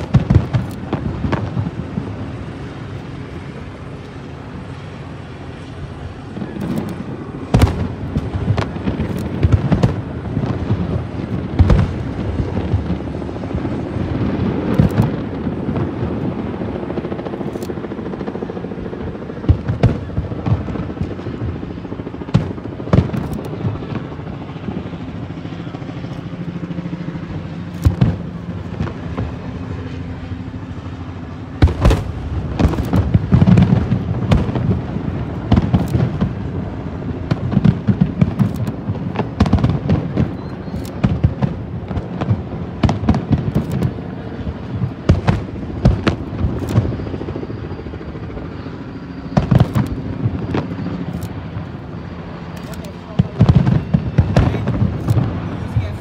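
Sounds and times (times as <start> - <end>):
firework shells booming: 6.4 - 13.0.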